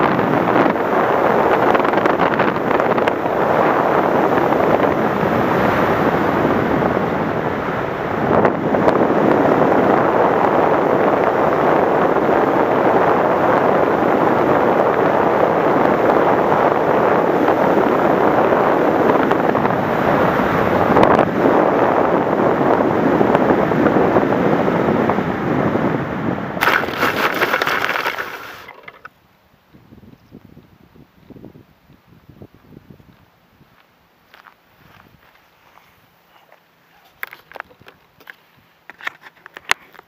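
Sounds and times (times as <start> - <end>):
wind rushing over microphone: 0.0 - 33.8, 34.8 - 38.8
model plane skidding through grass: 26.6 - 29.1.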